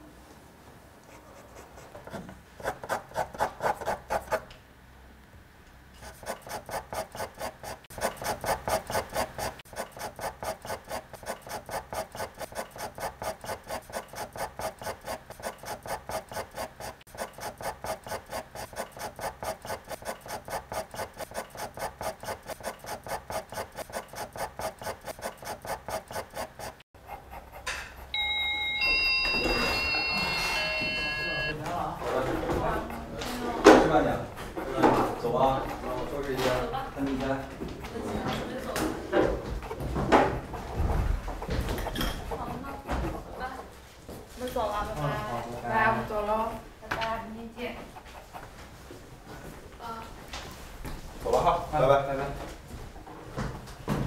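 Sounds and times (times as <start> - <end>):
pencil scratching on paper: 1.1 - 4.5, 6.0 - 28.1, 32.1 - 36.2
high steady tones: 28.0 - 31.6.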